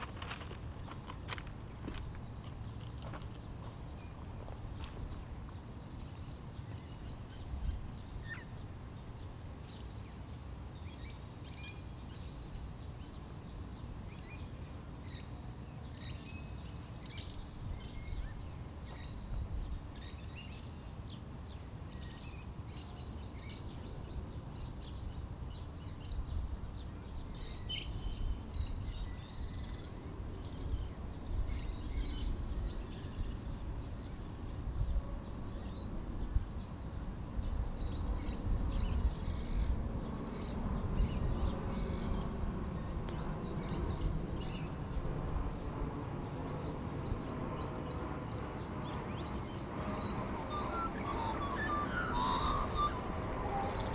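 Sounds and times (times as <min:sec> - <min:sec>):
small birds chirping: 0:36.6 - 0:53.9.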